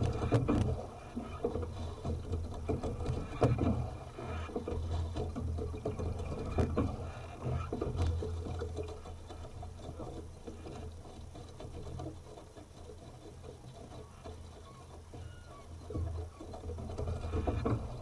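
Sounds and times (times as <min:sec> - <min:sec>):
water lapping against hull: 0:00.0 - 0:18.0.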